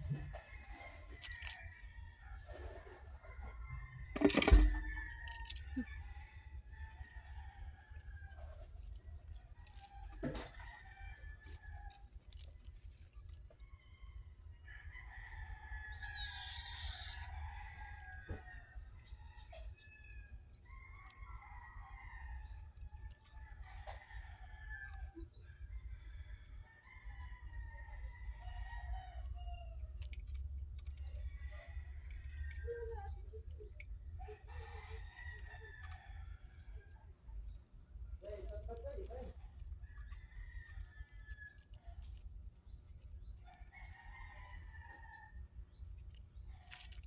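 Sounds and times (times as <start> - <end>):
birds chirping: 13.6 - 29.7, 31.0 - 46.8.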